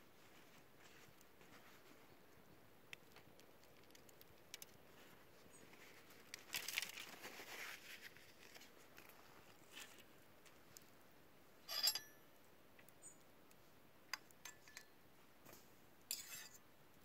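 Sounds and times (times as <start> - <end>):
aluminium foil crinkling: 3.0 - 10.8
faint metallic ring: 11.6 - 12.3, 16.1 - 16.6.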